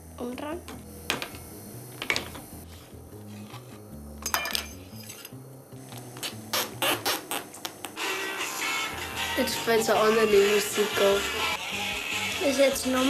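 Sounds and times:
music from a record player: 0:06.2 - 0:13.0.

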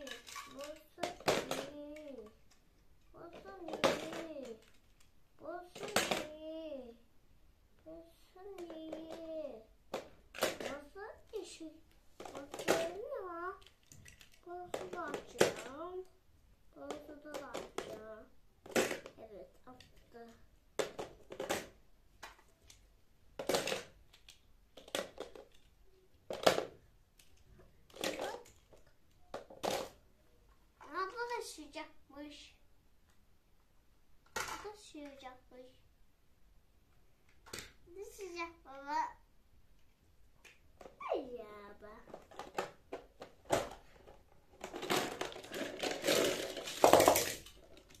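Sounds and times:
toy cars rattling in plastic box: 0:00.0 - 0:02.4, 0:03.3 - 0:04.9, 0:12.2 - 0:15.8, 0:27.9 - 0:30.0, 0:42.0 - 0:48.0
plastic clicks: 0:00.0 - 0:05.1, 0:19.8 - 0:30.0.

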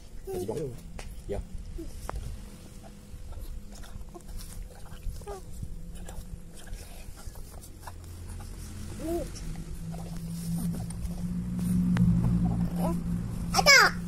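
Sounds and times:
steady low hum: 0:00.0 - 0:14.0
baby cooing: 0:08.9 - 0:09.6.

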